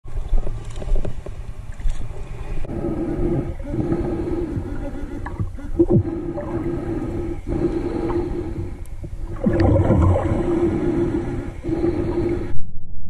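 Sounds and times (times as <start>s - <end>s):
underwater water noise: 0.1s - 12.6s
muffled underwater hum: 0.1s - 12.8s
water rushing surge: 9.4s - 10.8s.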